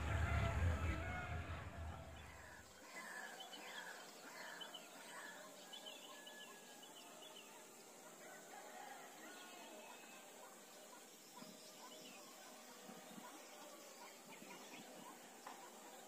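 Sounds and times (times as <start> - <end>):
low rumble: 0.0 - 2.6
faint bird chirps: 1.9 - 16.0.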